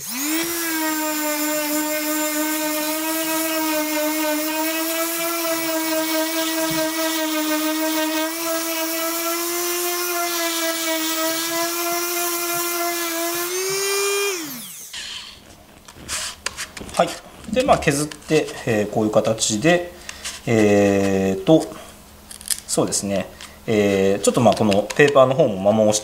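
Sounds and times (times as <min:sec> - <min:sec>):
electric sander on wood: 0:00.0 - 0:16.3.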